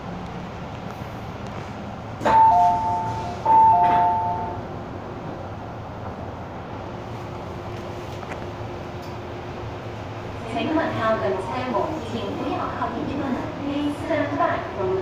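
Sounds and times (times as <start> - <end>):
train running noise: 0.0 - 15.0
two-tone electronic chime: 2.4 - 4.6.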